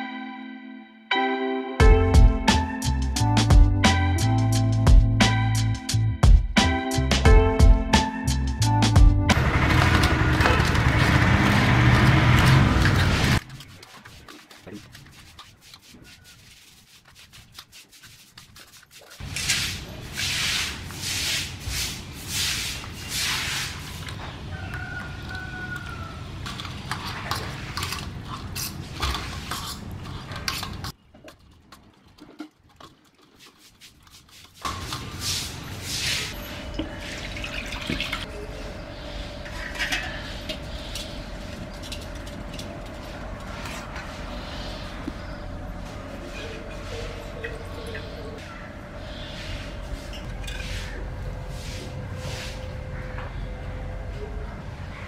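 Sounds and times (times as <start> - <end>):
forks scraping on a steel plate: 39.4 - 42.7.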